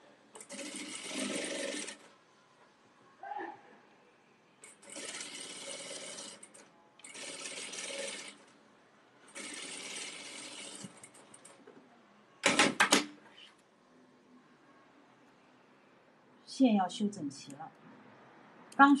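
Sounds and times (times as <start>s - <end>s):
sewing machine stitching: 0.4s - 2.1s, 4.6s - 8.5s, 9.3s - 11.6s.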